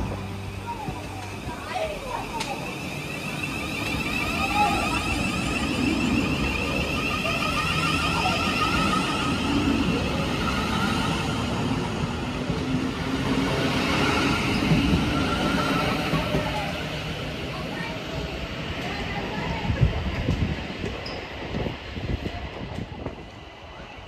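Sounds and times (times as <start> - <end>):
electric train whine: 0.0 - 24.0
wheels rumbling on rail: 0.0 - 24.0.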